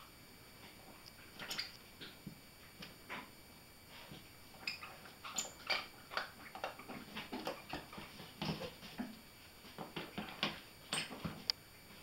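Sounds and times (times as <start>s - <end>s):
puppy chewing a rubber toy: 4.5s - 9.0s.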